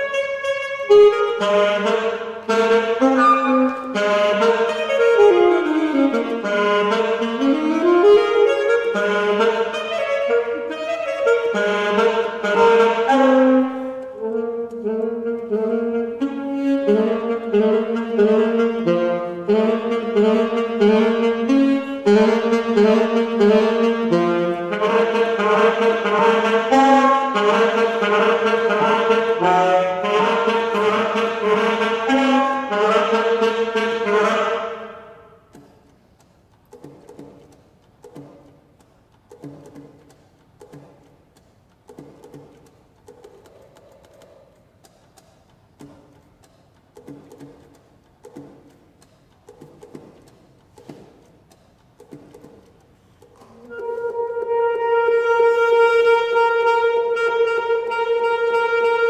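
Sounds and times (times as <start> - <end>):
solo saxophone playing: 0.0 - 35.5, 53.3 - 59.0.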